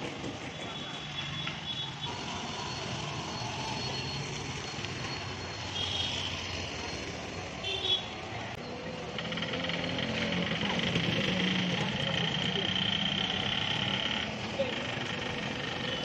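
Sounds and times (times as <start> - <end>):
street traffic: 0.0 - 16.0
motorcycle engine passing by: 8.7 - 16.0.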